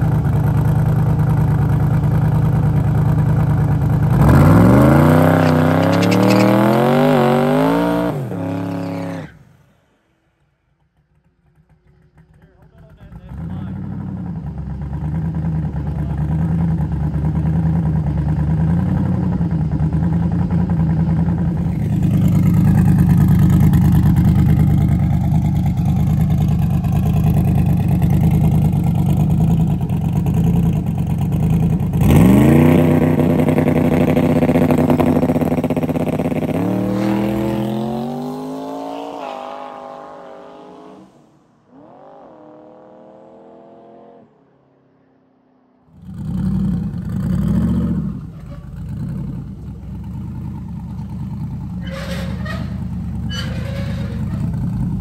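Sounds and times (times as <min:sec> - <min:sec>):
drag car engine revving: 0:00.0 - 0:09.6, 0:11.9 - 0:44.2, 0:46.0 - 0:55.0
gear shift: 0:05.2 - 0:07.0.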